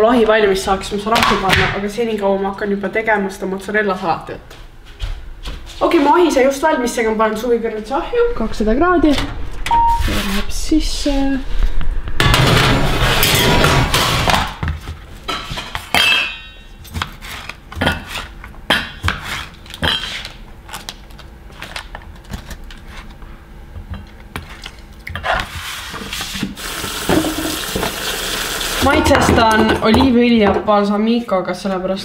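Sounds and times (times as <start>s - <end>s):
metal baking tray sliding: 8.3s - 14.4s
kitchen tap running: 26.6s - 29.2s.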